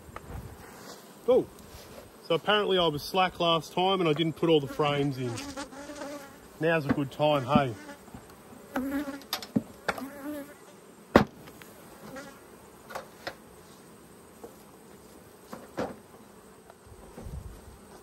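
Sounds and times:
honey bees buzzing: 0:00.0 - 0:18.0
knocks and clicks of hive woodwork: 0:06.8 - 0:10.0, 0:12.9 - 0:13.4, 0:15.5 - 0:16.0.

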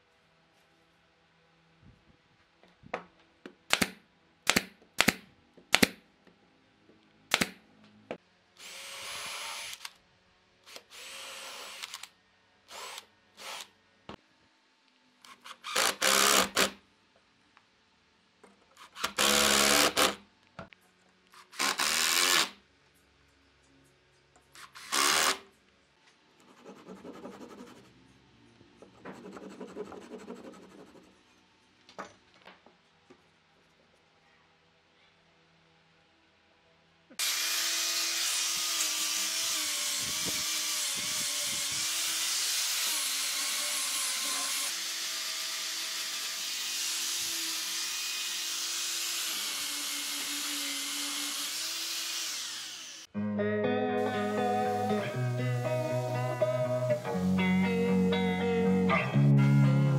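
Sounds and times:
cordless drill driving screws: 0:08.6 - 0:10.0, 0:10.7 - 0:12.1, 0:12.7 - 0:13.7, 0:15.3 - 0:16.7, 0:18.8 - 0:20.2, 0:21.4 - 0:22.6, 0:24.6 - 0:25.4, 0:37.2 - 0:53.1
hand saw cutting wood: 0:37.2 - 0:53.1.

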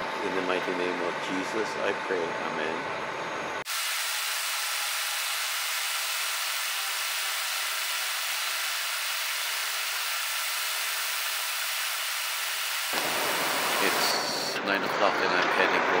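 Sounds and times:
steady hiss: 0:03.7 - 0:14.6.

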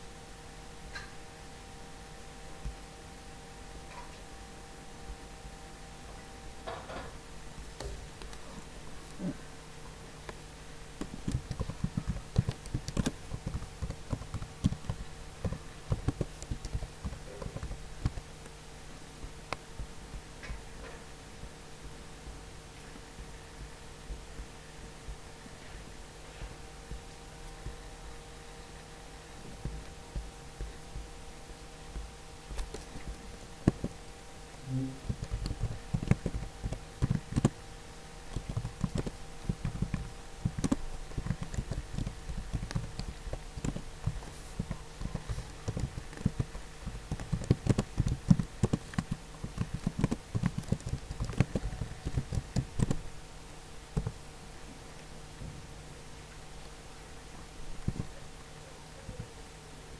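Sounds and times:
low electrical hum: 0:00.0 - 0:59.9
keyboard typing clicks: 0:11.0 - 0:18.3, 0:34.7 - 0:37.6, 0:38.3 - 0:53.0.

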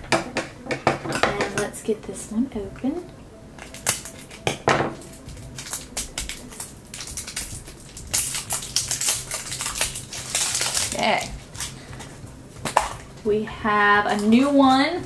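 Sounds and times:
scissors cutting plastic wrap: 0:03.6 - 0:13.2
plastic film crinkling: 0:03.6 - 0:13.3.

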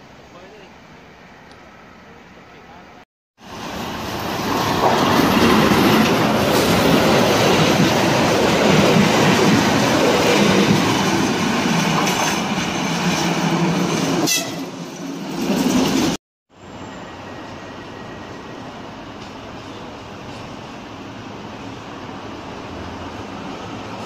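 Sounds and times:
train wheels clattering on rails: 0:04.2 - 0:16.2
brief high squeal: 0:16.6 - 0:18.8.

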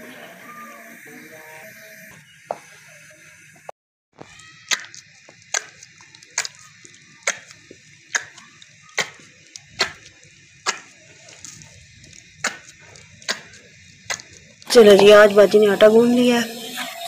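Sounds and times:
dough being kneaded by hand: 0:04.2 - 0:15.3.

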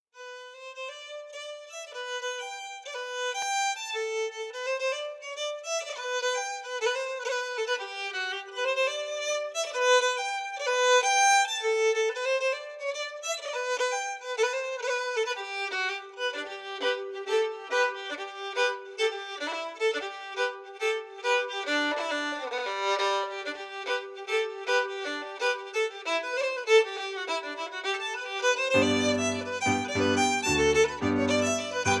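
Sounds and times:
fiddle melody: 0:00.2 - 0:32.0.

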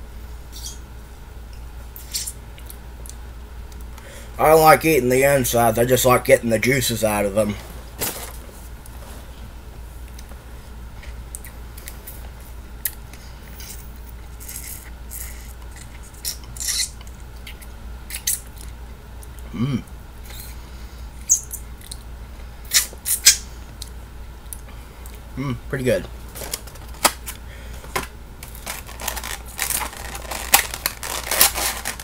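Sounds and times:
low electrical hum: 0:00.0 - 0:32.0
man humming: 0:19.4 - 0:20.0, 0:25.4 - 0:25.7.

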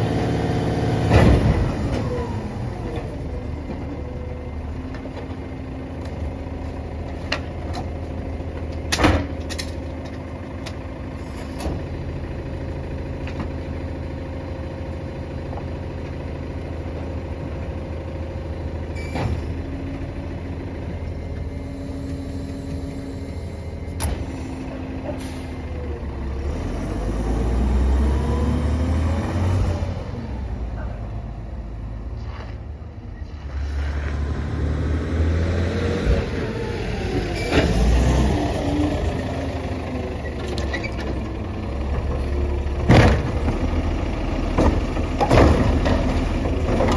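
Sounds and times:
garbage truck engine: 0:00.0 - 0:46.9
trash thumps and clunks: 0:01.0 - 0:04.1, 0:42.8 - 0:43.7, 0:44.5 - 0:46.9.

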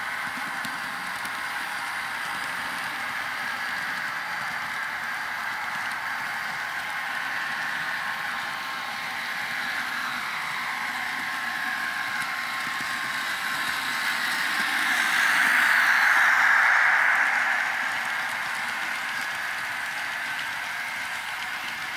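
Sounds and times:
model train running: 0:00.0 - 0:21.9.

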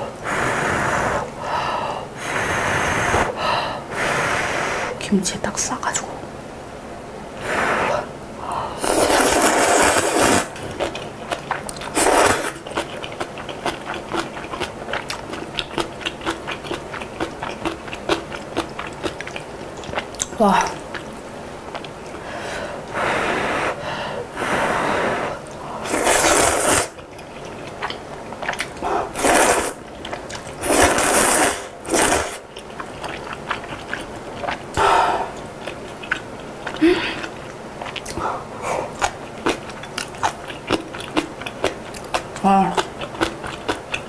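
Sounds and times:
slurping noodles: 0:08.7 - 0:20.1, 0:24.4 - 0:41.2
chewing with wet mouth clicks: 0:10.6 - 0:22.2, 0:27.0 - 0:30.8, 0:31.9 - 0:38.2, 0:38.8 - 0:44.0.

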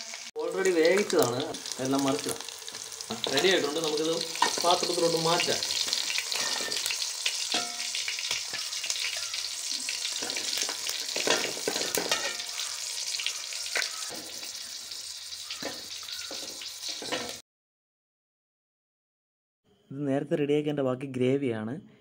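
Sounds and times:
food sizzling in hot fat: 0:00.0 - 0:17.4
steel spoon scraping pan: 0:05.8 - 0:17.4.

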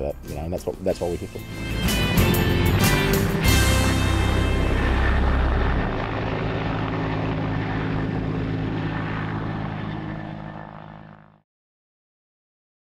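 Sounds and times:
helicopter flying past: 0:01.3 - 0:11.4.

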